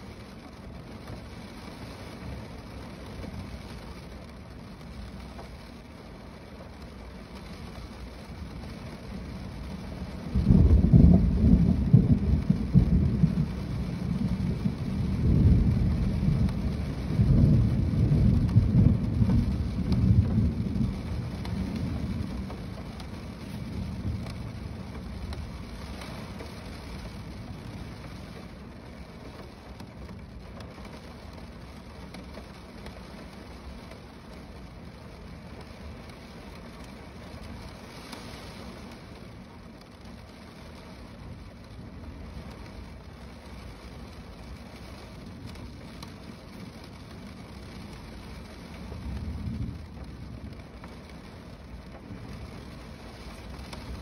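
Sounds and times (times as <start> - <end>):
rain on a car roof: 0.0 - 54.0
rumble of thunder: 8.4 - 37.7, 41.2 - 54.0.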